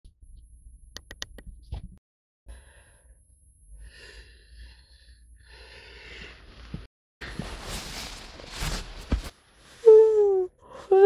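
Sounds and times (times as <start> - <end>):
person breathing heavily: 2.5 - 3.2, 3.8 - 6.8.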